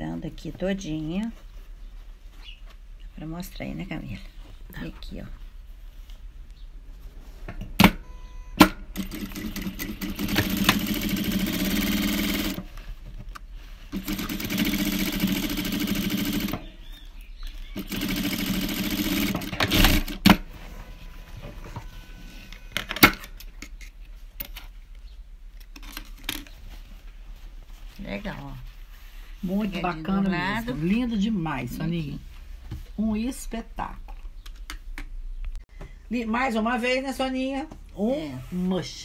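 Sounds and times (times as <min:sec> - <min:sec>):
sewing machine stitching: 0:09.0 - 0:12.6, 0:14.0 - 0:16.6, 0:17.8 - 0:20.3.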